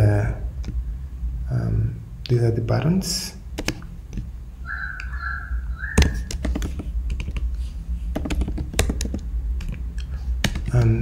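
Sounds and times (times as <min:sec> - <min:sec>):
low steady hum: 0:00.0 - 0:11.0
computer keyboard key clicks: 0:03.6 - 0:03.8, 0:06.0 - 0:07.5, 0:08.2 - 0:10.8.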